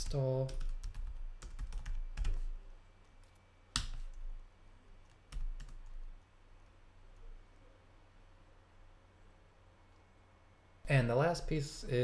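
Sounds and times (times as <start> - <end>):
keyboard typing: 0.0 - 2.6, 3.2 - 4.4, 5.0 - 6.2.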